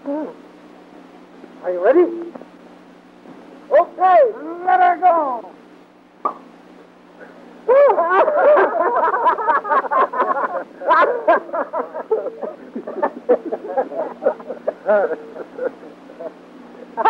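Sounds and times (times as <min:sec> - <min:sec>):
men laughing: 0:07.6 - 0:17.0.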